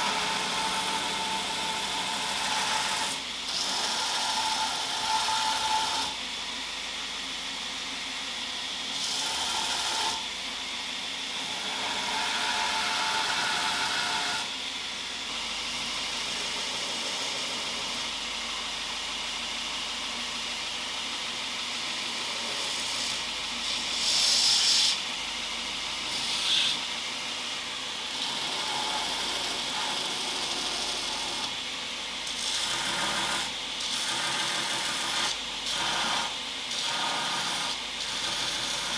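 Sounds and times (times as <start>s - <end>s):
belt grinder running: 26.0s - 26.9s, 32.2s - 38.9s.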